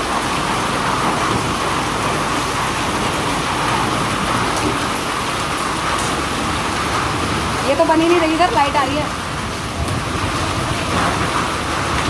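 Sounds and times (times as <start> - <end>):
heavy rain on pavement: 0.0 - 12.0.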